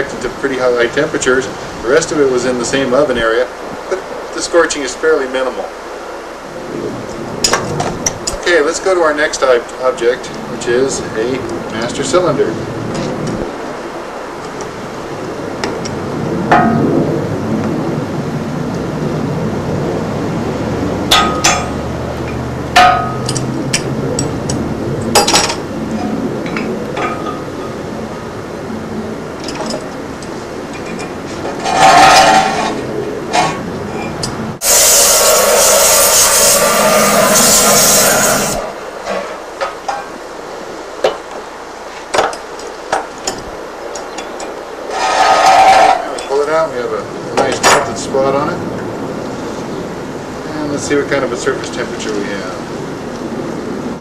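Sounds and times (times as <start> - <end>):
steady background noise: 0.0 - 54.0
gas torch flame hissing: 34.6 - 39.4.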